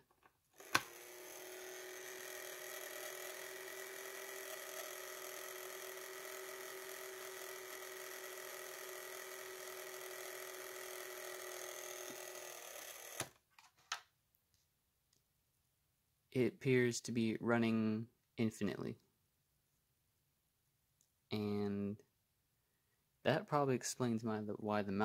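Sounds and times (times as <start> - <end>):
motor switching off click: 0.6 - 11.2, 11.9 - 13.4
small electric motor whining: 0.6 - 13.4.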